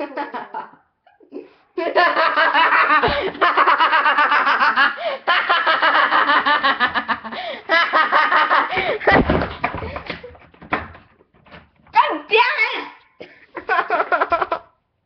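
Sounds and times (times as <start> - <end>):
people laughing hard: 1.8 - 9.3, 13.4 - 14.7.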